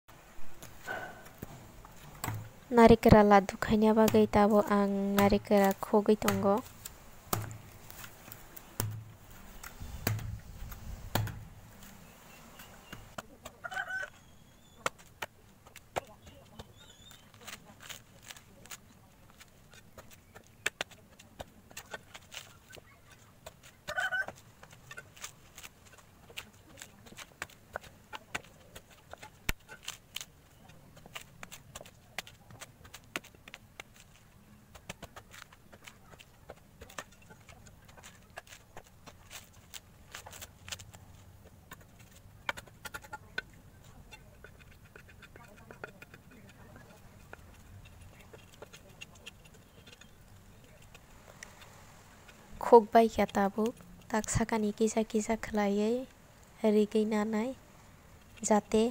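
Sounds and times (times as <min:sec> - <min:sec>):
machete chopping coconut husk: 0:00.6 - 0:02.6, 0:03.8 - 0:11.9, 0:12.6 - 0:41.0
blade knocking against coconut: 0:04.0 - 0:07.7, 0:08.8 - 0:10.4, 0:11.1 - 0:11.4
chicken clucking: 0:12.6 - 0:14.8, 0:22.4 - 0:25.0.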